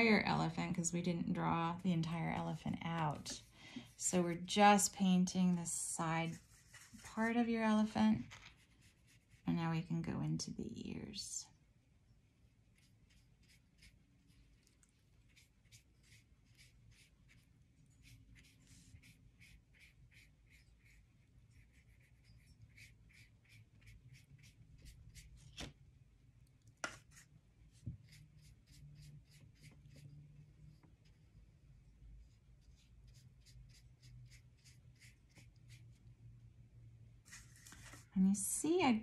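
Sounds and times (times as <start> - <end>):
paintbrush strokes on paper: 3.0 - 9.6, 12.6 - 25.4, 26.9 - 30.2, 32.2 - 36.0, 37.2 - 38.1.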